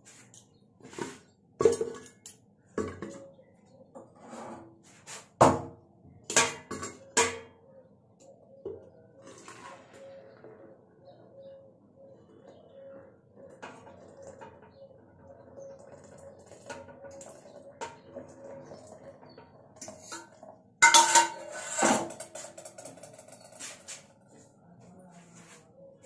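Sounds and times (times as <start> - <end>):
steel pots clattering: 6.3 - 7.5, 13.5 - 23.6
steel utensils clinking on stone: 20.8 - 23.2.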